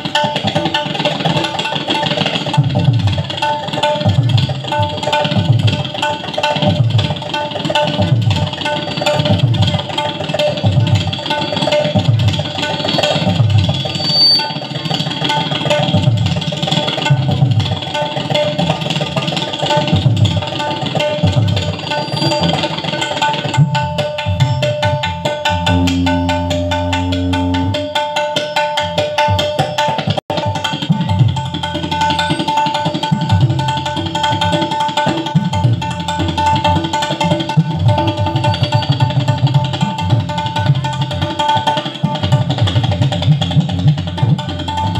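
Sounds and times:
tabla drumming: 0.0 - 44.9
melodic accompaniment line: 25.4 - 27.9
low held note: 25.5 - 27.9.

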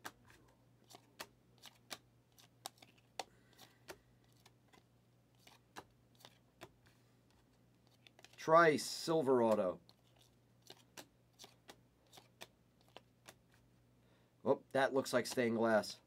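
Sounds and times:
trading cards flipped: 0.0 - 8.4, 9.4 - 13.6.

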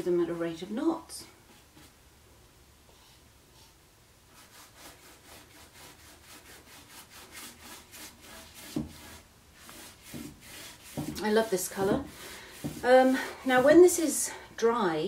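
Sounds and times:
brush scrubbing on wood: 4.3 - 14.2.

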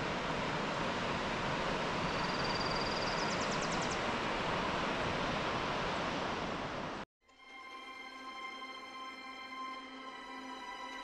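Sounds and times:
ocean waves breaking: 0.0 - 2.3.

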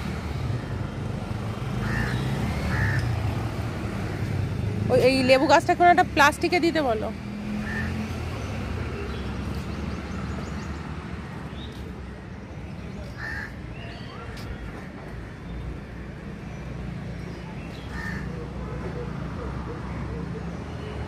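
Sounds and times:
low traffic rumble: 0.0 - 21.0
crows cawing: 1.8 - 3.2, 7.6 - 8.1, 13.1 - 13.6, 17.9 - 18.4.

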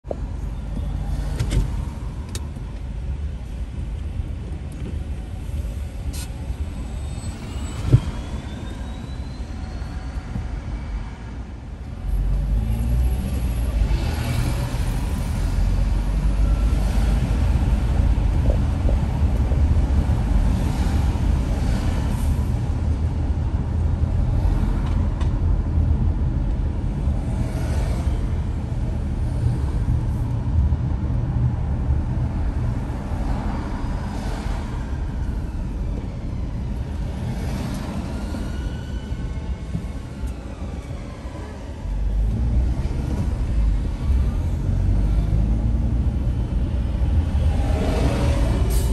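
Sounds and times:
car engine and road noise: 0.0 - 48.9.

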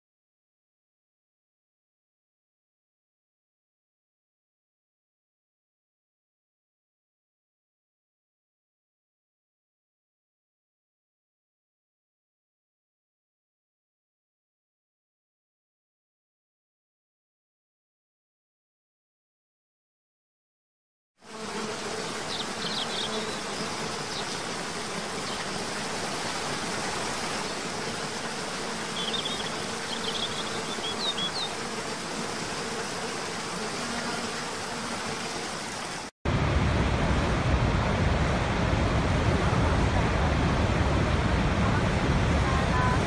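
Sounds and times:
high bird chirps: 22.3 - 24.4, 29.0 - 31.6
deep roar of large waterfall: 36.3 - 43.0.

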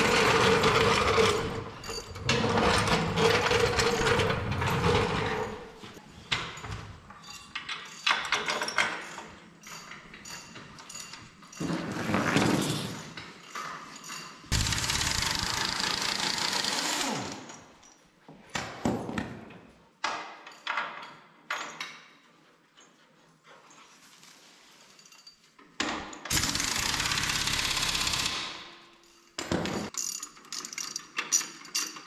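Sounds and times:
metal tool clinks and knocks: 0.7 - 15.2, 17.4 - 18.2, 20.0 - 24.0, 24.7 - 26.3, 28.7 - 32.0
pneumatic impact wrench hammering: 14.5 - 17.5, 26.3 - 28.7.

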